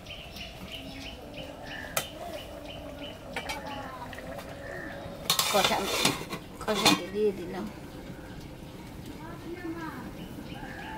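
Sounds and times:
small birds chirping: 0.0s - 10.9s
pot and lid clattering: 5.2s - 7.4s.

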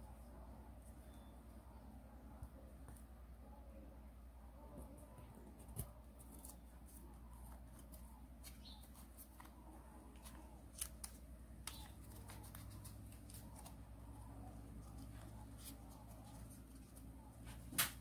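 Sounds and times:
paper rustling and crinkling: 5.3s - 18.0s
paper clicks: 5.6s - 13.9s.

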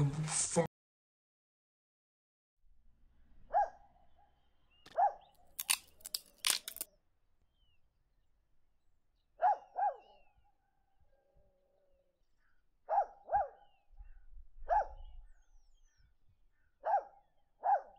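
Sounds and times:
dog barking: 3.5s - 4.3s, 4.9s - 5.3s, 9.4s - 10.2s, 12.9s - 13.7s, 14.6s - 15.2s, 16.8s - 17.9s.

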